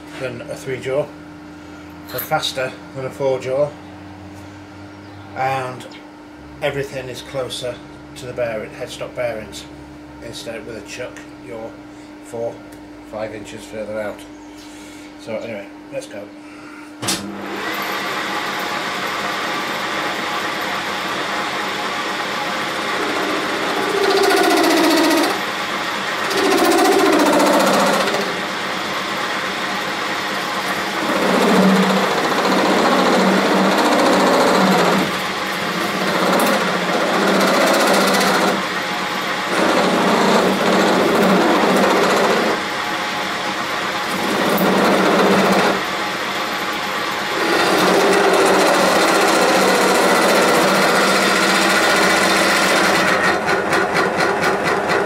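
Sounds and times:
metal lathe cutting steel: 0:17.5 - 0:55.0.

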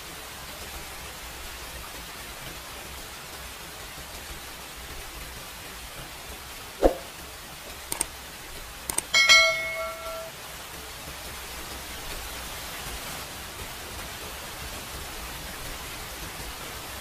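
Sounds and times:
steady hiss: 0:00.0 - 0:17.0
metal spoon clinking on bowl: 0:08.9 - 0:10.3.

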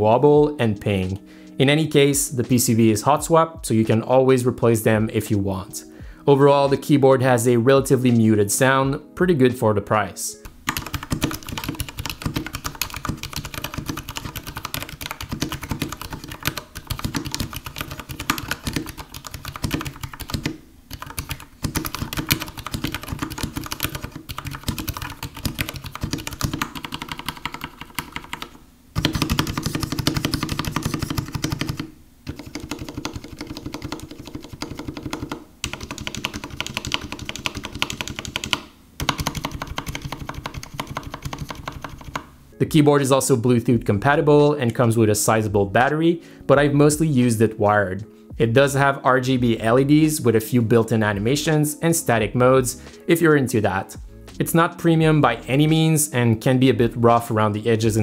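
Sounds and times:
mechanical keyboard typing: 0:10.6 - 0:42.3.

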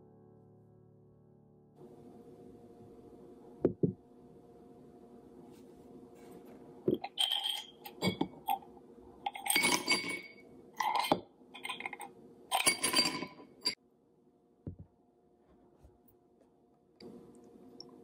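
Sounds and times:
ice cubes clinking in a glass: 0:07.0 - 0:08.6, 0:09.3 - 0:13.8.

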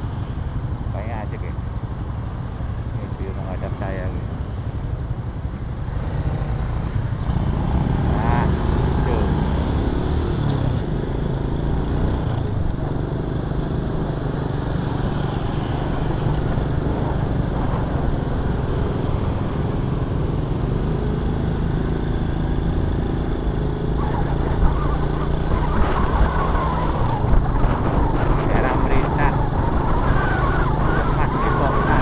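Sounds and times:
road noise: 0:00.0 - 0:32.0
motorcycle engine droning: 0:06.4 - 0:32.0.

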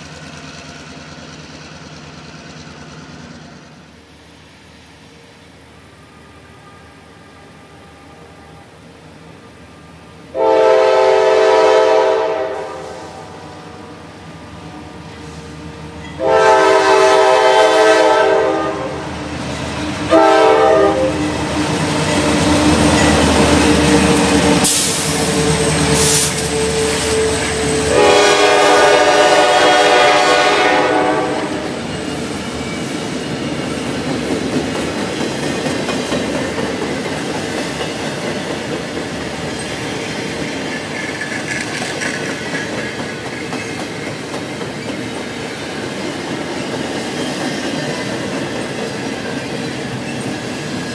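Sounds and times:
freight train wheels rumbling: 0:00.0 - 0:50.9
train air horn blasts: 0:06.3 - 0:08.7, 0:10.3 - 0:14.0, 0:16.2 - 0:19.1, 0:20.1 - 0:21.2, 0:24.6 - 0:31.8.

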